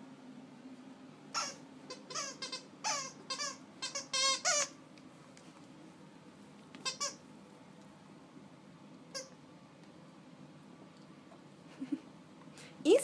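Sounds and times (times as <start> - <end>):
dog toy squeaking: 1.3 - 4.8, 6.8 - 7.2.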